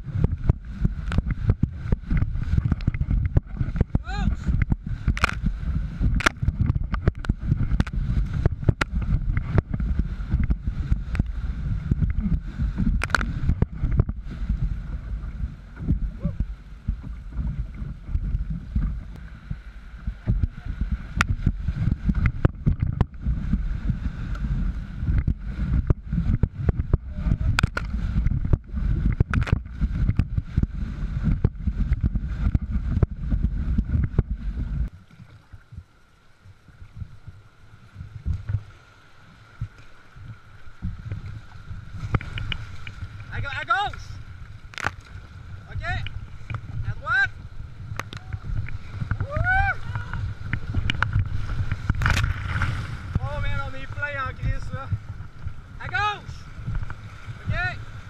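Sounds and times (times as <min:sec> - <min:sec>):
knocks and splashes: 0:00.0 - 0:14.6, 0:20.0 - 0:34.3, 0:40.8 - 0:46.9, 0:47.9 - 0:53.6.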